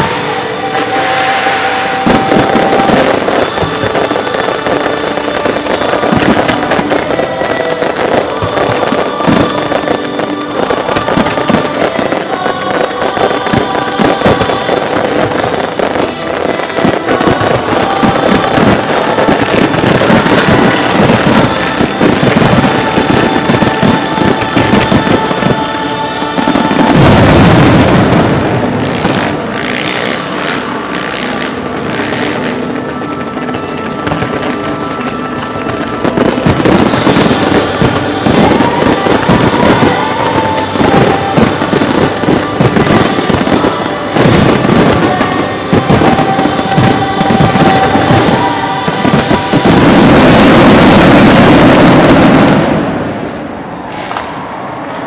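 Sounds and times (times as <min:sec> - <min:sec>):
fireworks bangs and crackling: 0:00.0 - 0:55.0
music playing: 0:00.0 - 0:55.0.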